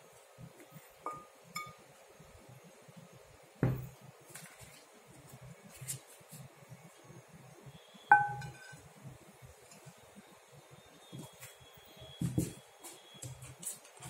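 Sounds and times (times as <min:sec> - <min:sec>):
pans clinking: 0:01.1 - 0:01.8, 0:08.1 - 0:08.8.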